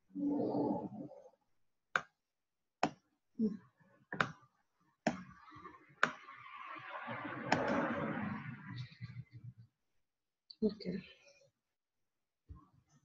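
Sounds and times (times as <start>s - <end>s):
computer mouse clicking: 7.5s - 7.9s.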